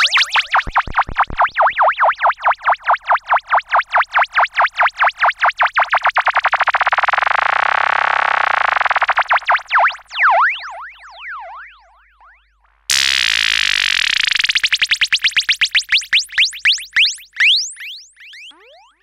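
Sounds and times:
synthesizer warbling tone: 0:00.0 - 0:01.9, 0:18.2 - 0:19.0.

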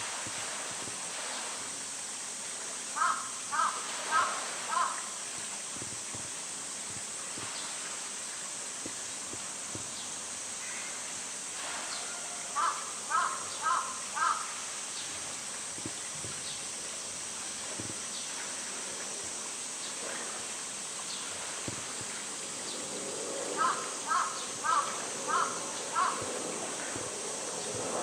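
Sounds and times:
high-pitched hiss: 0:00.0 - 0:28.0
crow cawing: 0:03.0 - 0:05.1, 0:12.6 - 0:14.5, 0:23.6 - 0:26.3.

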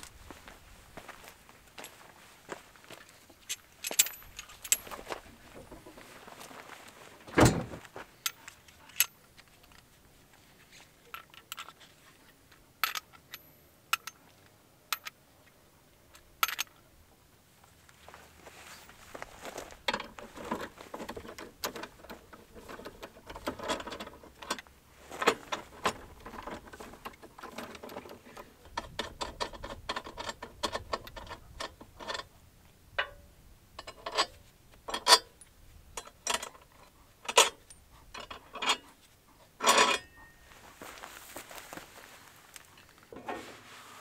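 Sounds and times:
metal wrench clicking and clinking: 0:12.8 - 0:14.2, 0:16.4 - 0:16.8, 0:39.6 - 0:40.3.

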